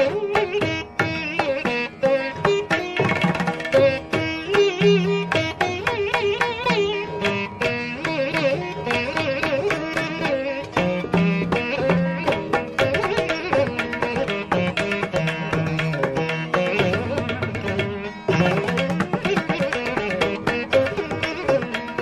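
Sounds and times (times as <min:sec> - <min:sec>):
plucked string melody: 0:00.0 - 0:22.0.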